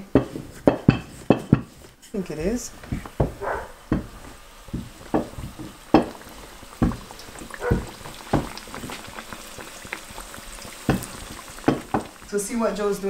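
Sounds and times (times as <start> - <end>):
dough sizzling in oil: 0.2 - 13.0
dull knocks: 2.8 - 6.2, 6.8 - 9.0, 10.8 - 12.1.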